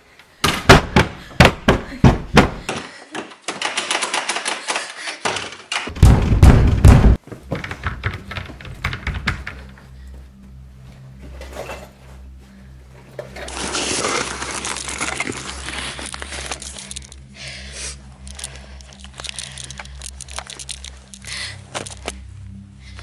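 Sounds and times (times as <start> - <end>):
steady low hum: 9.5 - 13.5, 15.8 - 23.0.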